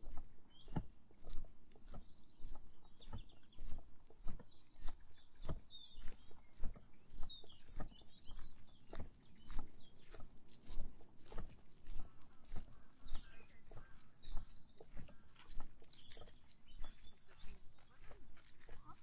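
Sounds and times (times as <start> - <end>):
footsteps on a path: 0.0 - 19.0
small birds chirping: 0.0 - 19.0.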